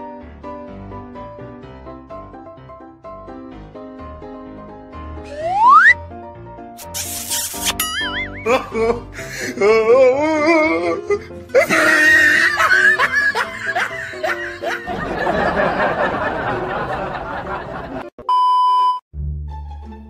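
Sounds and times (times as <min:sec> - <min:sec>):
music: 0:00.0 - 0:18.1, 0:19.1 - 0:20.0
wobbling sliding tones: 0:05.3 - 0:06.0
laughter track: 0:11.6 - 0:18.2.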